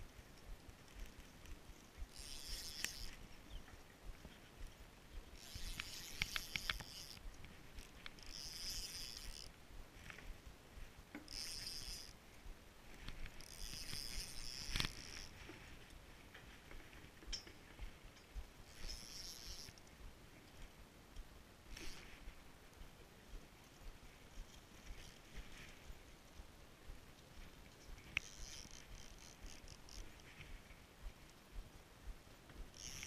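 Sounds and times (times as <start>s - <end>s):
sharp reel clicks: 0.4s - 3.3s, 5.2s - 10.2s, 11.1s - 12.2s, 13.0s - 15.4s, 18.6s - 19.8s, 27.9s - 30.6s, 32.6s - 33.0s
fishing reel whirring: 0.5s - 3.4s, 5.2s - 9.6s, 11.2s - 12.2s, 13.0s - 15.5s, 18.6s - 19.8s, 21.7s - 22.1s, 24.3s - 25.5s, 27.4s - 30.5s, 32.6s - 33.0s.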